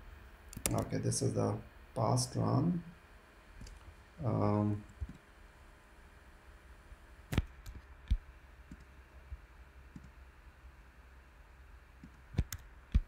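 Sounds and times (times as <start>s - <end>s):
faint low hum: 0.0s - 13.0s
computer mouse clicking: 0.5s - 0.9s, 7.3s - 8.9s, 9.9s - 10.2s, 12.0s - 13.0s.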